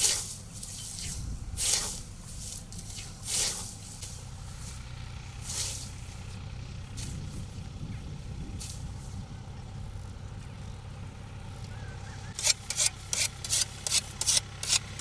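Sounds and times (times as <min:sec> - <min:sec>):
scythes swishing through grass: 0:00.0 - 0:07.6, 0:08.2 - 0:09.2, 0:12.3 - 0:15.0
low steady engine rumble: 0:00.0 - 0:15.0.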